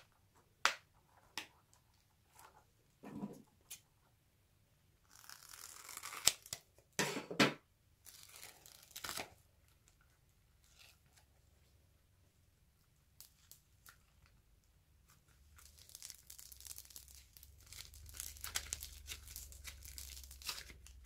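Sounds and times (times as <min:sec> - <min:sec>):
rubber crackling and tearing: 0:05.0 - 0:06.7, 0:08.0 - 0:09.4, 0:15.1 - 0:21.0.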